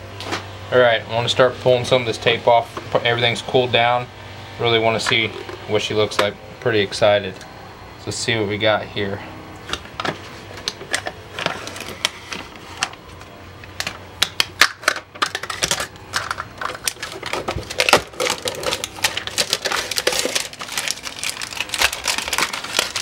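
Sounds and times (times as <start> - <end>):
masking tape peeling and crumpling: 15.3 - 23.0.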